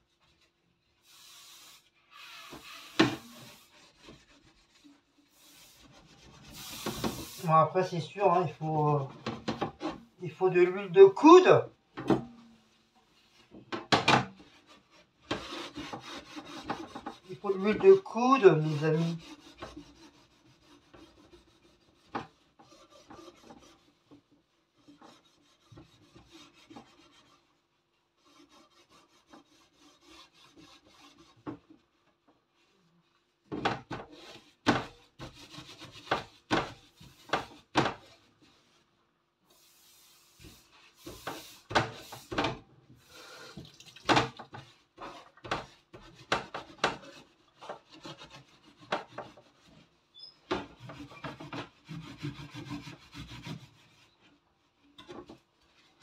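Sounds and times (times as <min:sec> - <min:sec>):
sponge scrubbing wire oven rack: 0:14.3 - 0:24.2.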